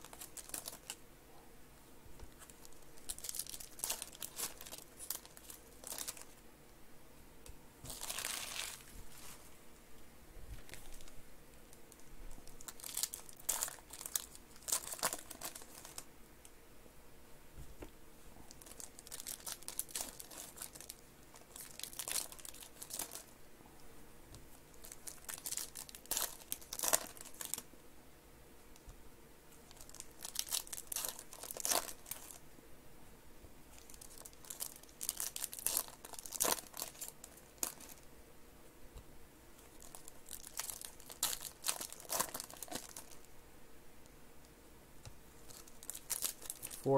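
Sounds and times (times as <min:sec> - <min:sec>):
foil wrappers crinkling: 0:00.0 - 0:01.0, 0:02.3 - 0:06.4, 0:07.8 - 0:09.4, 0:12.4 - 0:16.1, 0:18.5 - 0:23.3, 0:24.6 - 0:27.7, 0:29.6 - 0:32.4, 0:33.7 - 0:38.1, 0:39.6 - 0:43.3, 0:45.4 - 0:46.9
packs being torn open: 0:18.5 - 0:23.3, 0:29.7 - 0:32.4, 0:33.8 - 0:38.0, 0:39.7 - 0:43.2, 0:45.5 - 0:46.9.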